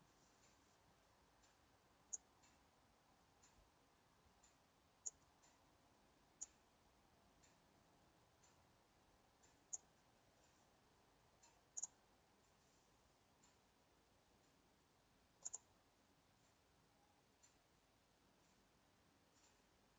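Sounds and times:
faint ticks: 1.4s - 2.7s, 3.4s - 3.7s, 4.4s - 5.7s, 6.4s - 6.7s, 7.4s - 7.7s, 8.4s - 8.7s, 9.4s - 10.8s, 11.4s - 12.8s, 13.4s - 13.7s, 15.4s - 15.8s, 17.4s - 17.7s, 18.4s - 19.9s
computer mouse clicking: 11.8s - 12.0s, 15.4s - 15.7s.

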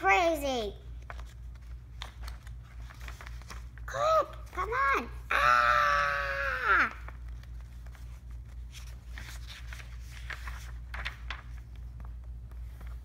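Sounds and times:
paper pages rustling: 0.8s - 4.9s, 6.9s - 13.0s
child's high drawn-out voice: 3.9s - 7.0s.

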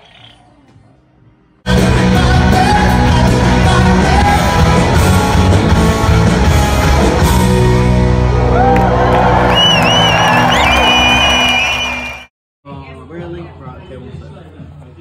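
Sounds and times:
pop-rock song with singing: 1.7s - 7.2s.

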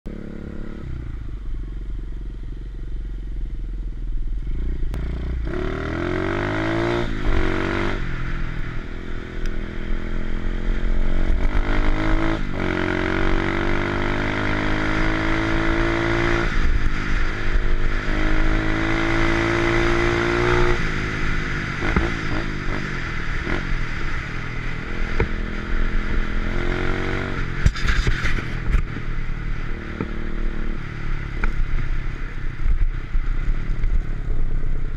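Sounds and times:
motorbike engine revving: 4.4s - 8.5s, 9.2s - 31.9s.

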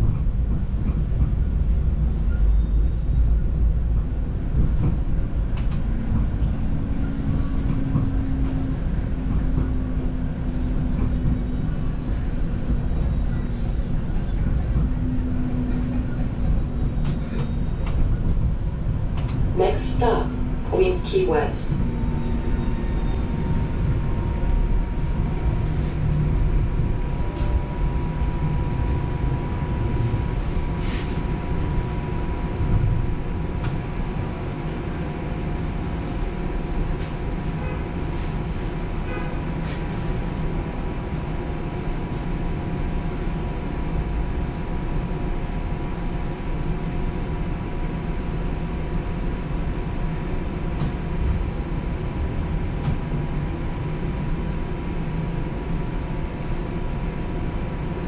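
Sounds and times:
streetcar rumbling on rails: 0.0s - 58.0s.

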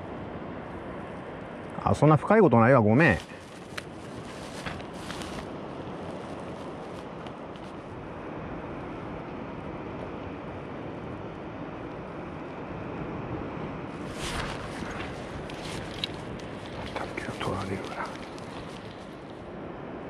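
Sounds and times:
wind: 0.0s - 20.0s
rustle: 2.6s - 9.2s, 13.9s - 19.6s.

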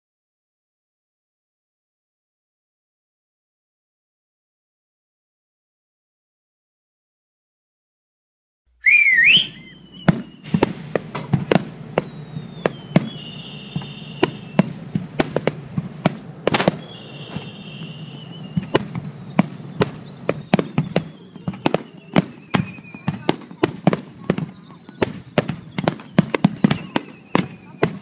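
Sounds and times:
fireworks whistling: 8.8s - 28.0s
fireworks bangs and crackles: 9.6s - 28.0s.

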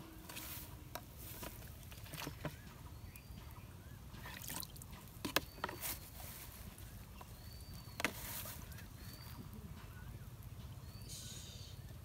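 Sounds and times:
fish splashing in plastic bucket: 4.2s - 5.8s
faint high chirps: 6.8s - 11.9s.

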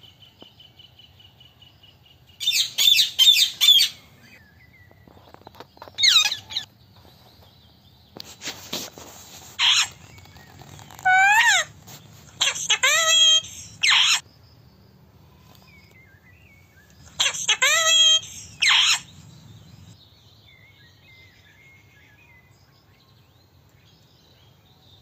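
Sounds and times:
parakeets calling: 2.4s - 4.4s, 5.9s - 6.7s, 9.6s - 14.2s, 17.1s - 20.0s.

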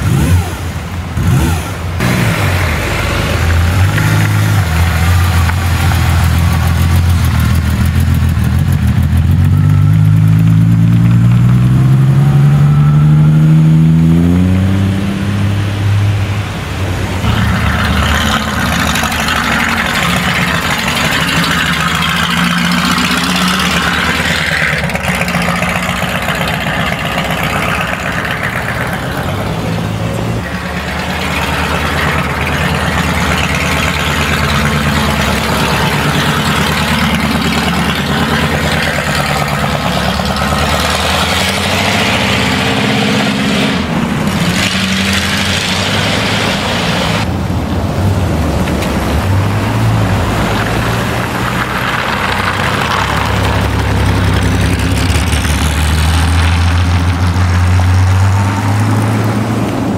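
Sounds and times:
car engine accelerating: 0.0s - 59.9s.

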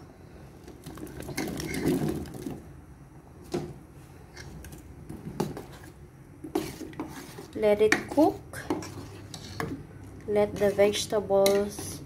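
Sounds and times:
vegetable pieces clattering into pot: 0.8s - 2.6s.

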